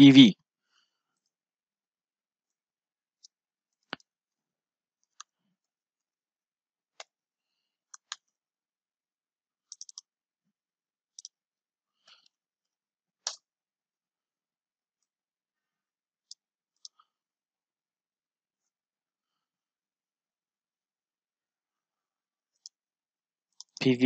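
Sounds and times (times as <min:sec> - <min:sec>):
mouse and keyboard clicks: 0:09.7 - 0:10.1, 0:11.2 - 0:11.4.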